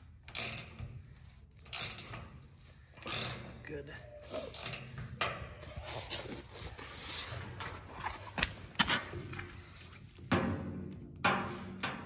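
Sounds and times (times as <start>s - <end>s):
ratcheting wrench clicking and scraping: 0.0s - 3.7s, 4.3s - 7.4s.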